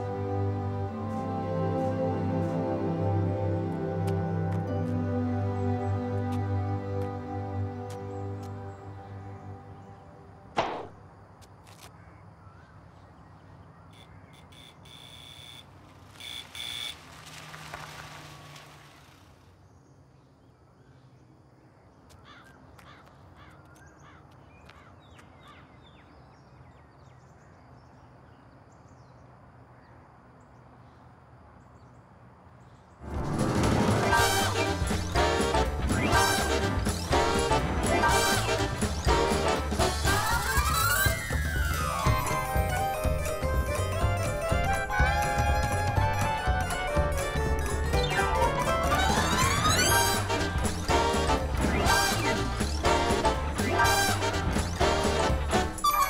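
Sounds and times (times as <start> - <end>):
music: 0.0 - 10.5, 33.0 - 56.0
birds chirping: 4.7 - 10.5, 34.0 - 56.0
sharp knock: 10.6 - 11.0.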